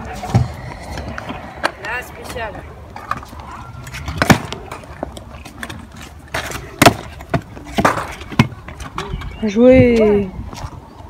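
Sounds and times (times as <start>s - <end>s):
low rumble: 0.0s - 4.2s
scooter decks clacking on concrete: 3.0s - 10.1s.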